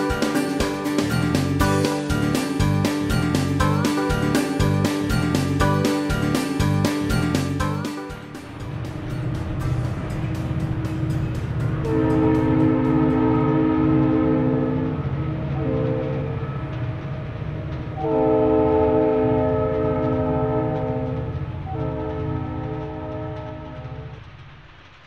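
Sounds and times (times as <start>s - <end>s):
moving train rumble and clatter: 0.0s - 25.0s
locomotive air horn: 11.8s - 16.7s, 18.0s - 24.2s.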